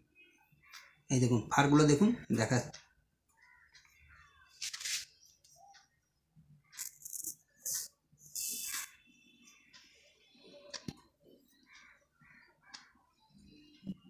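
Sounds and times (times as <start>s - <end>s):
razor scraping facial hair: 6.8s - 9.0s.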